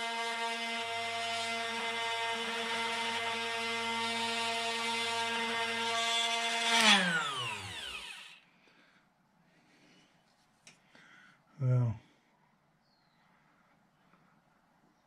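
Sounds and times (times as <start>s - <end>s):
drill sharpener motor running: 0.0s - 8.4s
motor spinning down whine: 5.2s - 8.4s.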